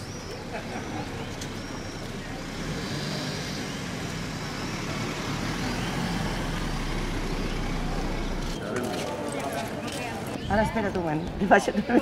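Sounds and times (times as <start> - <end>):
car passing slowly: 0.3 - 10.0.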